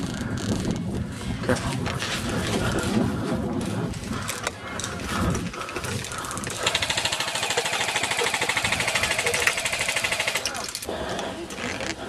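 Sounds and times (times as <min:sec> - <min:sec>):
airsoft gun full-auto firing: 0:06.6 - 0:10.5.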